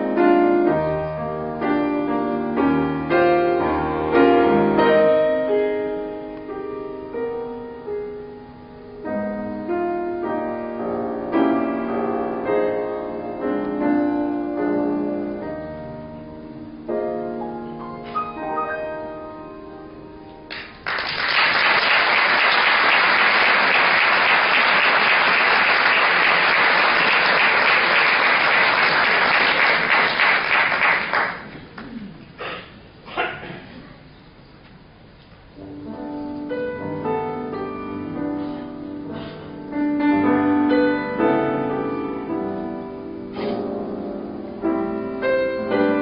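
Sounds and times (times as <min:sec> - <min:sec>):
slow gentle piano: 0:00.0 - 0:46.0
audience applauding: 0:20.5 - 0:32.0.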